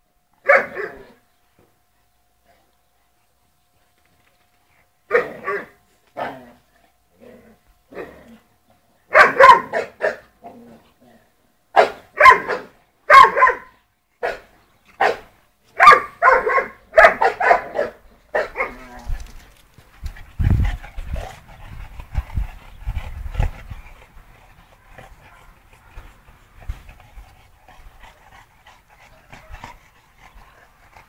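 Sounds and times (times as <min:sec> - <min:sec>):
dog barking: 0:00.4 - 0:01.0, 0:09.1 - 0:10.2, 0:11.8 - 0:18.8.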